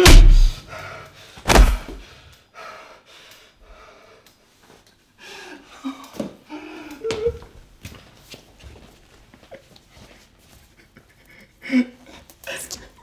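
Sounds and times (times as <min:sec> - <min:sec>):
heavy punches thudding: 0:00.0 - 0:00.6, 0:01.5 - 0:02.0
person gasping breaths: 0:00.1 - 0:04.3, 0:05.2 - 0:07.2.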